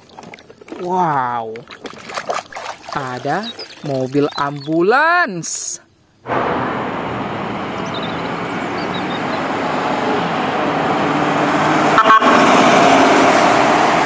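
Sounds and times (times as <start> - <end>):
vehicle and traffic noise: 6.2 - 14.0
vehicle horn: 11.9 - 13.0.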